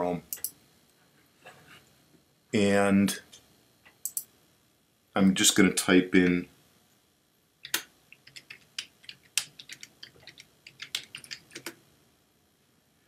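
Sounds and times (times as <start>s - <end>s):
keyboard typing: 7.6s - 11.8s.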